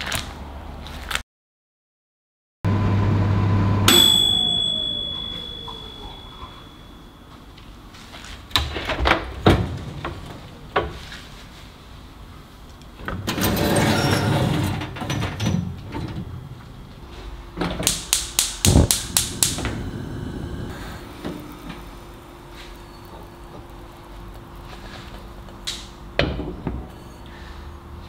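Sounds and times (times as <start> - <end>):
metal rack scraping on metal: 13.2 - 15.4.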